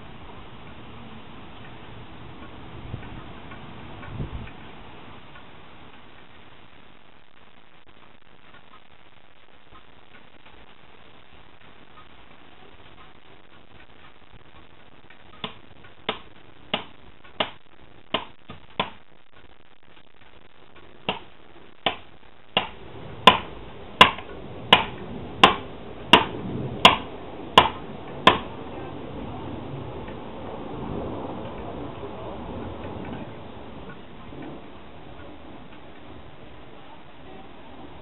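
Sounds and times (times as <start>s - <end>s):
hammer striking metal wedge: 22.6s - 28.5s.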